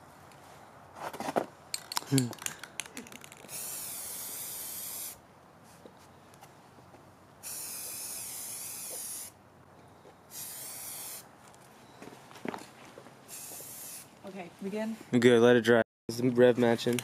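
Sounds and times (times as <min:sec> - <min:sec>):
spray can hissing: 0:03.4 - 0:05.2, 0:07.4 - 0:09.4, 0:10.3 - 0:11.3, 0:13.3 - 0:14.1.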